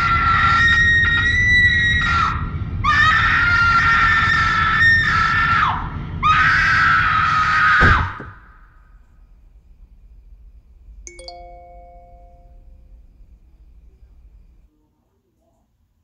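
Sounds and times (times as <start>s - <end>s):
steady low rumble: 8.0s - 14.7s.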